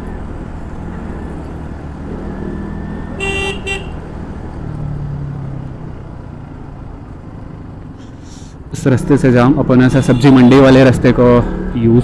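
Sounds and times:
engine and road noise: 0.0 - 12.0
vehicle horn honking: 3.2 - 4.0, 9.8 - 10.8.

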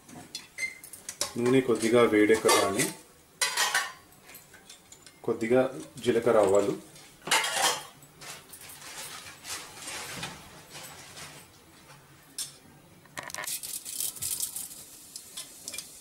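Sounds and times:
seeds crackling in hot oil: 13.2 - 16.0.

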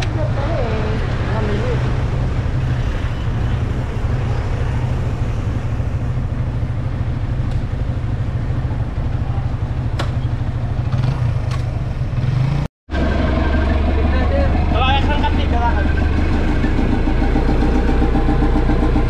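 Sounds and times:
street traffic: 0.0 - 19.0
vehicle engine idling: 12.9 - 19.0.

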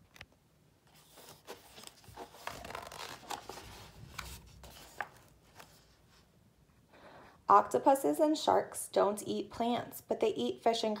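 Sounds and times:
book page turning: 0.9 - 6.2.

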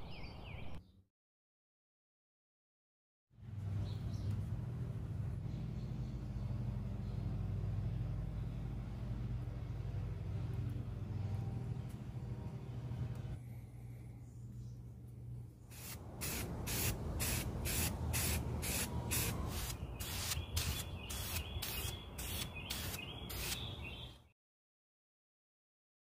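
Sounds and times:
spray can ball rattling: 15.7 - 23.6.

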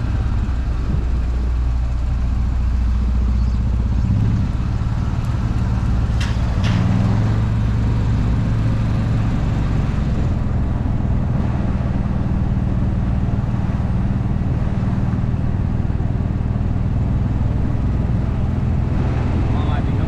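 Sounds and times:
golf cart driving: 0.0 - 20.0.

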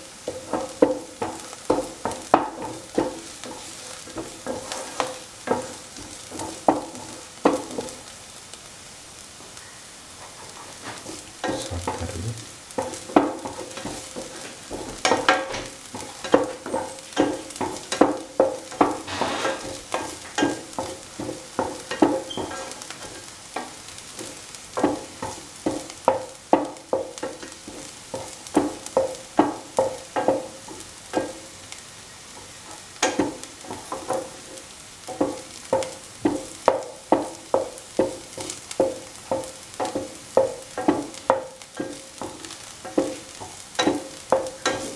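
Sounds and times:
shallots sizzling in a pan: 0.0 - 44.9
utensil scraping a pan: 0.3 - 7.9, 10.5 - 23.3.

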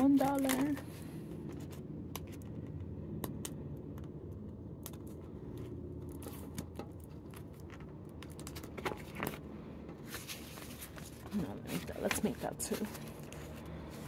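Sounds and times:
plastic pouches clicking and crinkling: 0.0 - 0.9
low steady hum: 0.0 - 14.0.

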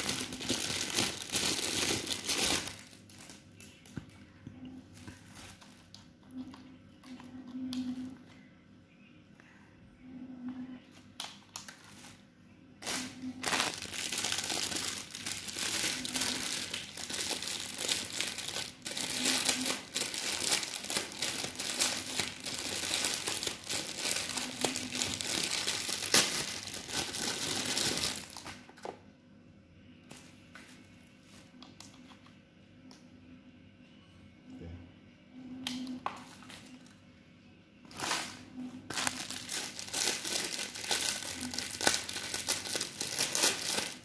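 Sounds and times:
plastic packaging crinkling: 0.0 - 4.2, 4.9 - 7.9, 11.2 - 12.2, 12.8 - 28.9, 37.9 - 44.0.

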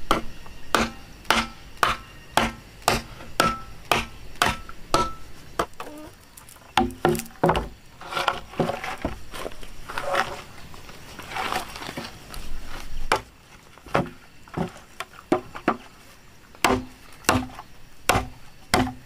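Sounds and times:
hand tool striking wood: 0.1 - 5.8, 6.8 - 9.1, 16.6 - 19.0.

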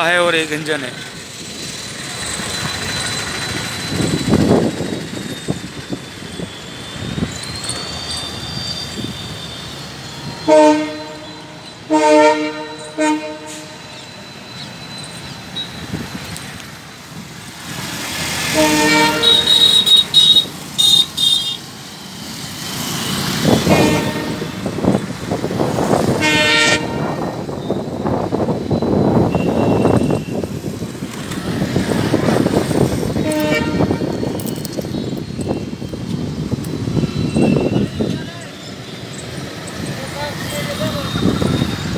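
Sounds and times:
locomotive horn blasts: 10.4 - 14.0, 18.5 - 21.6, 23.5 - 24.7, 26.2 - 27.3, 33.2 - 34.1.

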